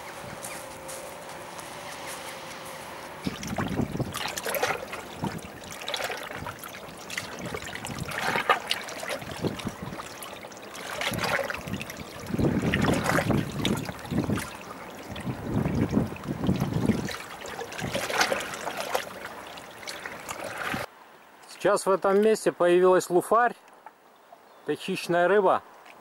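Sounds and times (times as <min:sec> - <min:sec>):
seawater sloshing among rocks: 0:03.2 - 0:20.9.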